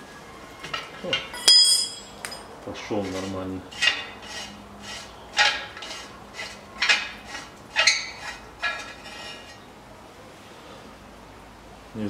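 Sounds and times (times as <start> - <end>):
sharp metallic clinks: 1.3 - 2.5.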